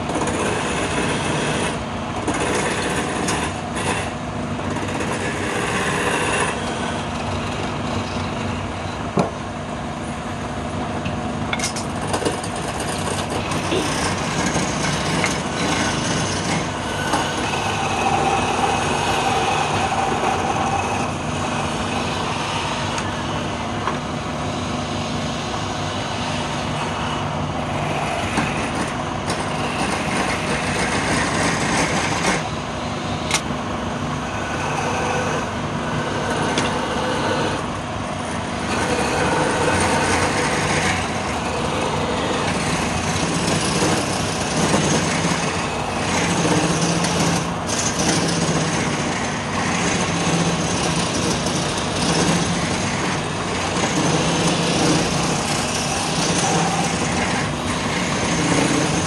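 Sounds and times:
chisel scraping spinning wood: 0:00.0 - 0:08.7, 0:11.5 - 0:59.0
lathe motor hum: 0:00.0 - 0:59.0.

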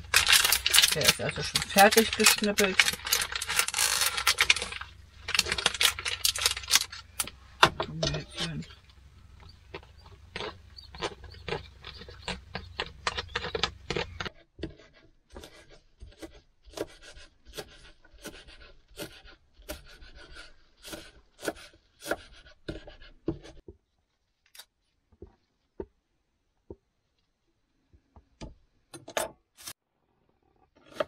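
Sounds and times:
packet rustling: 0:00.0 - 0:07.4.

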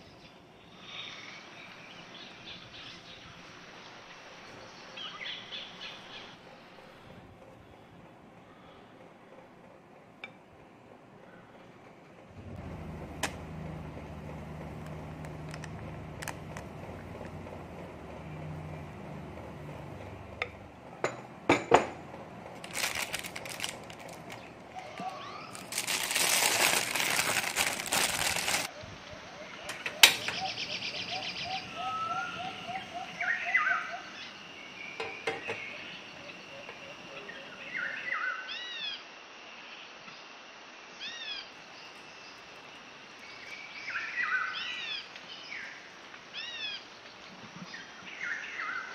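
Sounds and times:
birds chirping: 0:00.0 - 0:09.0, 0:22.0 - 0:38.8
low mechanical hum: 0:00.0 - 0:48.9
plastic rustling: 0:22.5 - 0:28.7.

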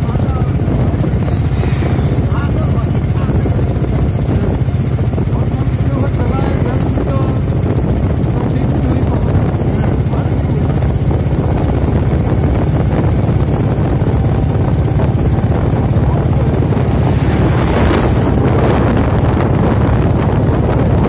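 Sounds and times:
truck passing whoosh: 0:00.0 - 0:05.2, 0:13.9 - 0:20.6
vehicle engine and road noise: 0:00.0 - 0:21.0
wind buffeting microphone: 0:00.0 - 0:21.0.

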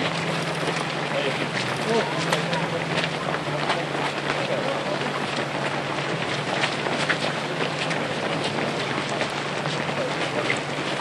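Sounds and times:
runners' footsteps on asphalt: 0:00.0 - 0:11.0.

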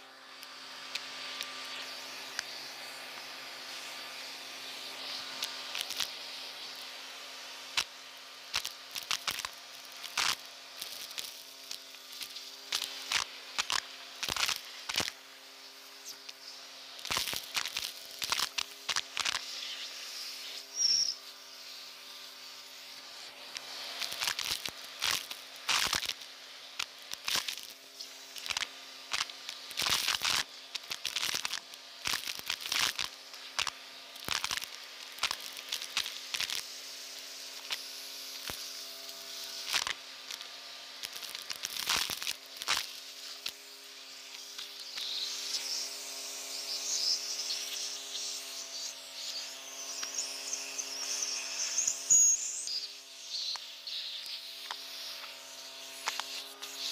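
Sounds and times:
vacuum cleaner motor humming: 0:00.0 - 0:56.9
grit rattling through nozzle: 0:08.5 - 0:51.9.

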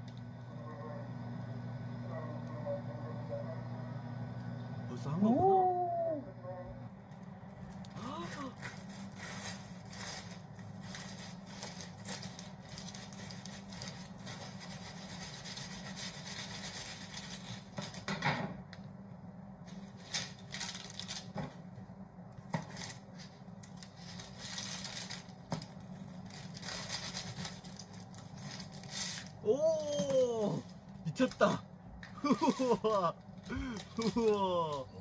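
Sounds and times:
crust cracking: 0:07.1 - 0:18.1, 0:19.8 - 0:21.5, 0:22.4 - 0:34.9.

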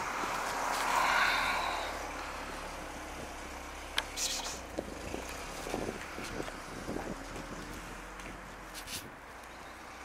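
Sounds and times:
traffic hum: 0:00.0 - 0:10.0
light footsteps on paving: 0:04.7 - 0:09.6.

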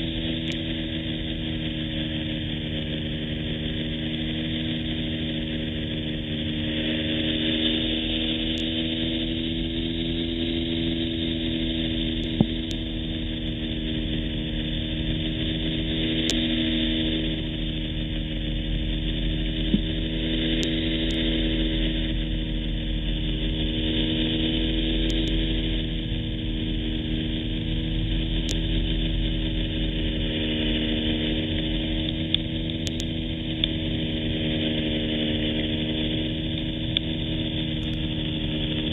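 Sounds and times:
small plane engine droning: 0:00.0 - 0:38.9.

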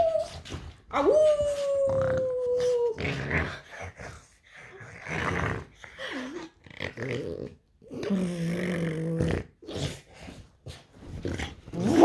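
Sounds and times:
dog howling: 0:00.9 - 0:03.0
dog grumbling and growling: 0:01.9 - 0:10.1, 0:11.1 - 0:12.0.

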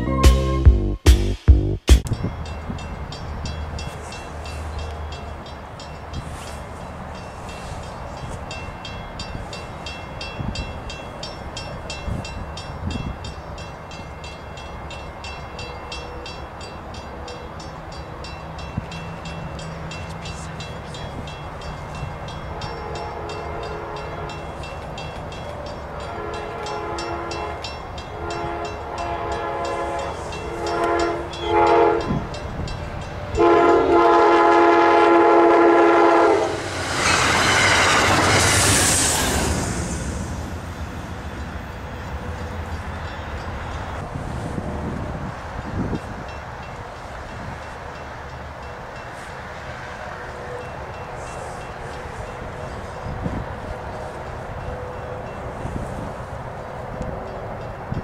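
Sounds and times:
distant train horn blasts: 0:22.3 - 0:36.8, 0:49.2 - 0:56.2.

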